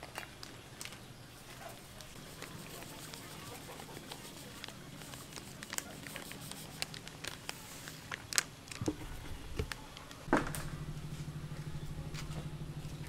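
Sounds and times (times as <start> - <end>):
low pulsing hum: 8.7 - 13.0
loud knock: 10.3 - 11.3.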